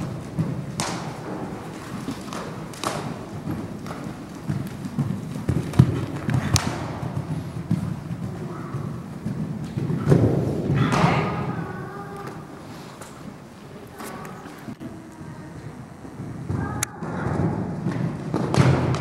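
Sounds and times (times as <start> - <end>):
horse hoofbeats on sand: 0.0 - 11.5.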